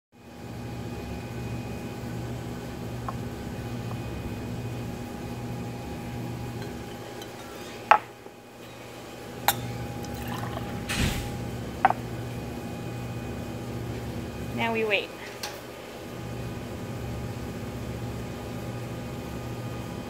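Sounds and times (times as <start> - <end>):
steady low hum: 0.2 - 20.0
glass beakers clinking: 9.5 - 10.8
liquid pouring and splashing: 10.0 - 11.4.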